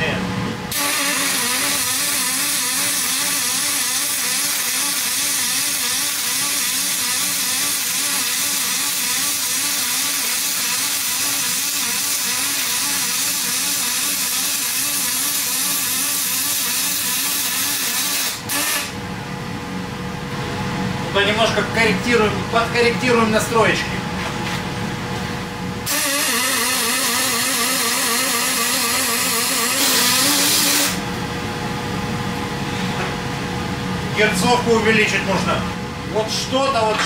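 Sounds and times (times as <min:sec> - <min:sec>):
welding arc hissing: 0:00.7 - 0:18.9, 0:25.9 - 0:31.0.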